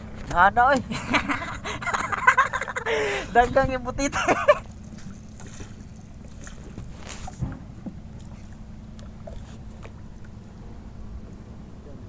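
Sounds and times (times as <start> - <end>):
water lapping and splashing: 0.0 - 12.0
soft bump on boat: 3.4 - 11.4.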